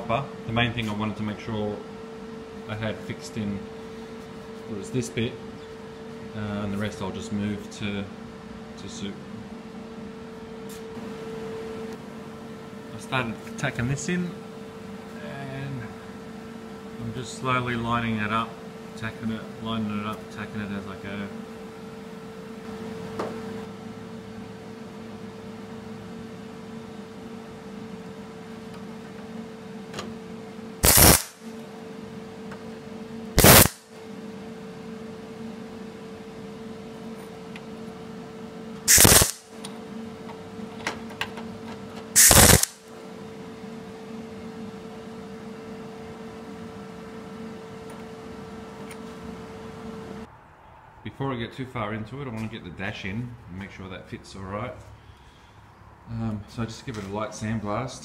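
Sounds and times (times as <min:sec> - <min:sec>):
steady background hum: 0:00.0 - 0:58.0
tack welding bursts: 0:30.8 - 0:31.4, 0:33.4 - 0:33.9, 0:38.9 - 0:39.5, 0:42.2 - 0:42.8.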